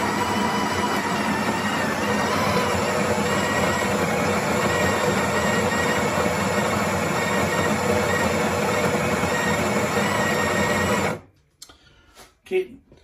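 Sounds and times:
coffee grinder whirring: 0.0 - 11.3.

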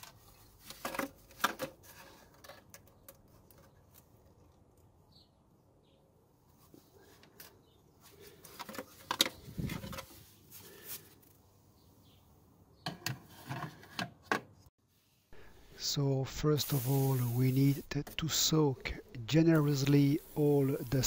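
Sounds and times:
faint handling noise: 6.5 - 11.4.

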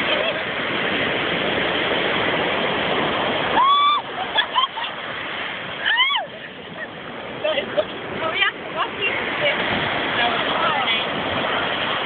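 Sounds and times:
surf washing up beach: 0.0 - 12.0
woman shrieking: 3.6 - 4.1, 5.8 - 6.4
woman squealing: 3.6 - 4.1, 5.8 - 6.3.

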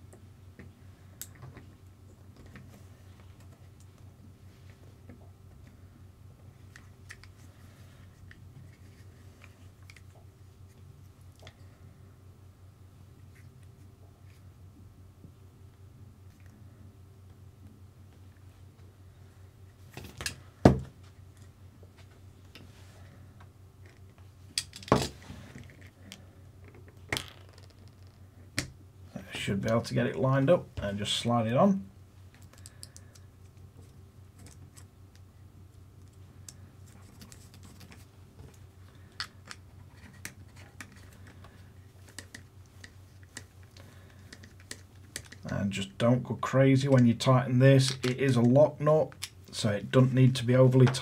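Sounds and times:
steady low hum: 0.0 - 51.0
small hard parts clicking and knocking: 32.4 - 33.2, 42.1 - 45.5
small plastic parts clicking: 32.4 - 33.3.

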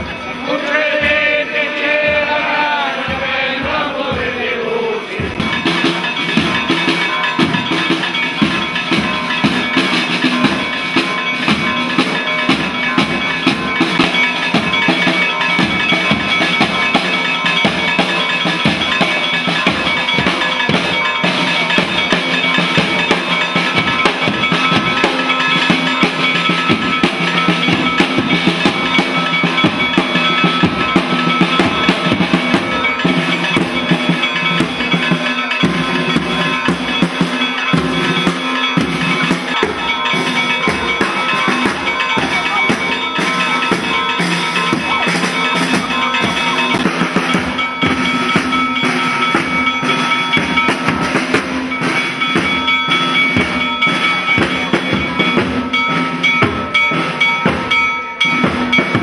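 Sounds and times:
band melody instruments: 0.0 - 59.0
snare and bass drums marching: 0.0 - 59.0
men singing slow chant: 0.4 - 5.4.

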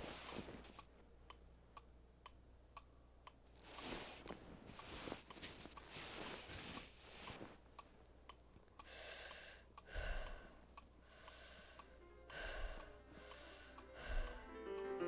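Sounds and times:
faint even ticking: 0.0 - 14.9
heavy breaths and sighs: 8.8 - 14.5
piano music: 12.9 - 15.0.

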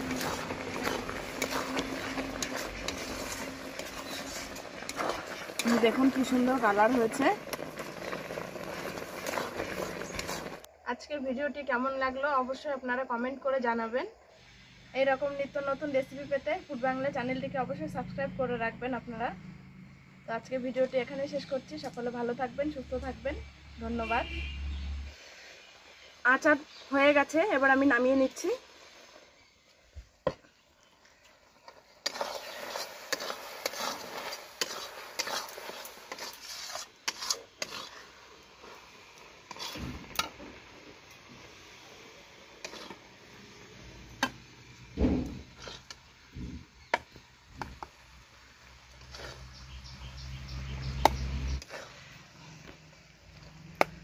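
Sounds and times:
metal spoon scraping a pan: 0.0 - 10.7, 31.6 - 40.7, 42.5 - 44.4, 45.2 - 46.1, 48.9 - 52.7.

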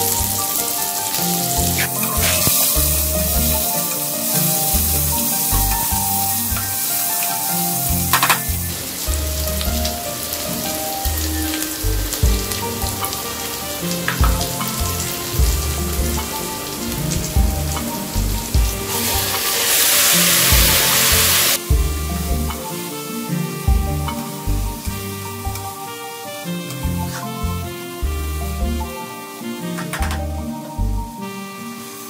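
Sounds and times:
spices sizzling in hot fat: 0.0 - 32.0
loud hiss of rice poured into fat: 19.0 - 21.6.

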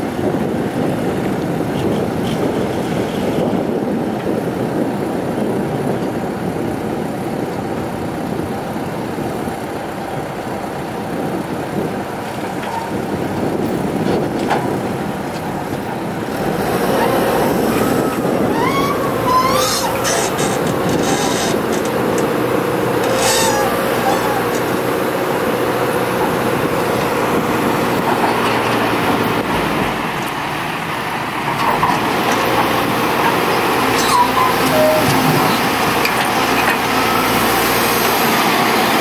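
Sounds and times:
diesel engines running: 0.0 - 39.0
hydraulic whine: 16.8 - 22.3, 22.9 - 25.0, 32.8 - 38.0.

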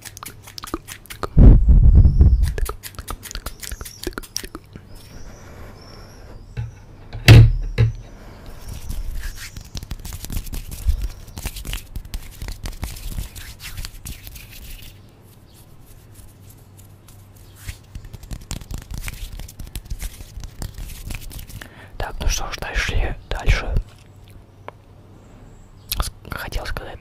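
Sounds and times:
microphone handling bump: 6.6 - 8.1.

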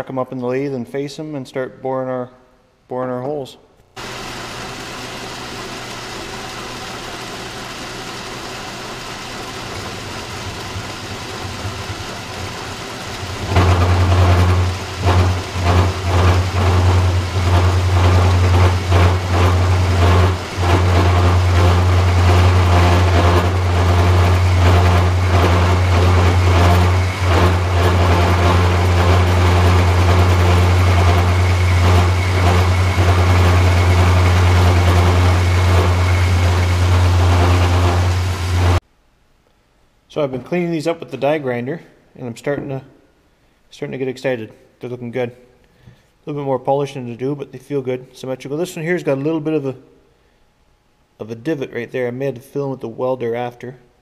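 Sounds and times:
metal lathe running: 4.0 - 38.8.

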